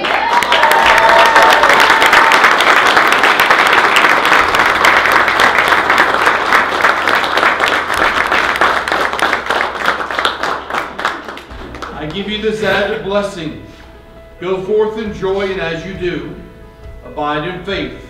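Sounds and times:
crowd applauding: 0.0s - 12.6s.

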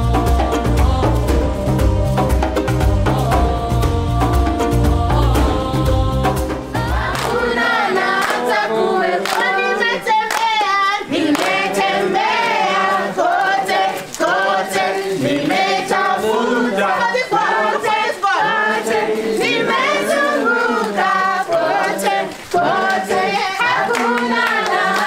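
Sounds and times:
backing music with bass line: 0.0s - 9.2s
group singing unaccompanied: 0.0s - 25.0s
hand claps: 7.0s - 25.0s.

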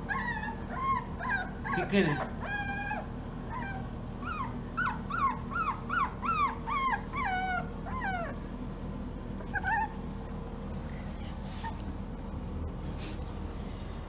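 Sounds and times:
puppy whining: 0.0s - 8.5s, 9.3s - 12.0s.

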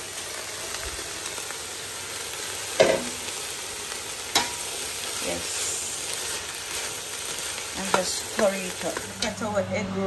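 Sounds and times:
food sizzling in a pot: 0.0s - 10.0s.

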